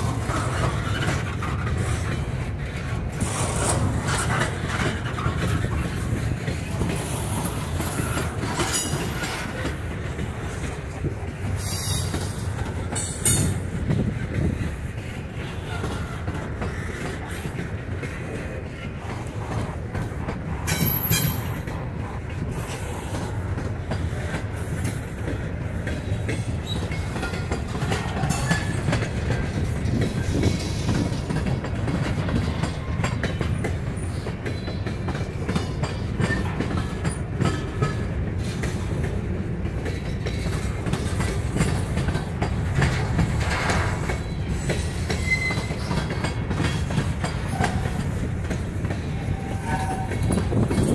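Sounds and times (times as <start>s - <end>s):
freight train rumbling: 0.0s - 50.9s
wheels clicking over rail joints: 0.0s - 50.9s
high-pitched wheel squeal: 45.1s - 46.0s.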